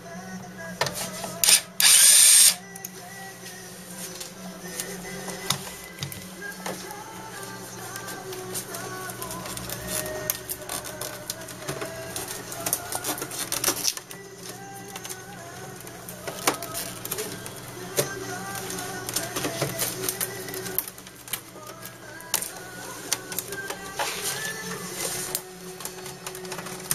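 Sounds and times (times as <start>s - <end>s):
printer motor whine: 1.3s - 2.8s.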